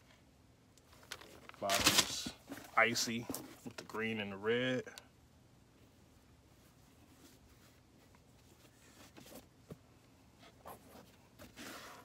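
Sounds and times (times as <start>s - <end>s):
sneaker handling rustles: 0.9s - 4.1s, 6.6s - 12.0s
scrape: 10.4s - 12.0s.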